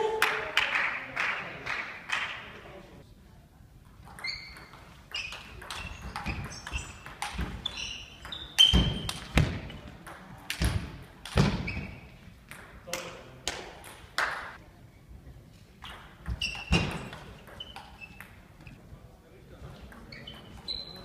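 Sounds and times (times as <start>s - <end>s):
table tennis ball hitting bats and table: 4.0s - 14.6s, 15.8s - 18.4s.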